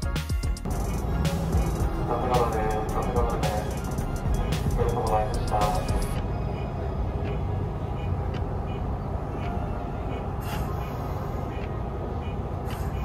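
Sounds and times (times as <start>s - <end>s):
electric train rumbling: 0.6s - 13.0s.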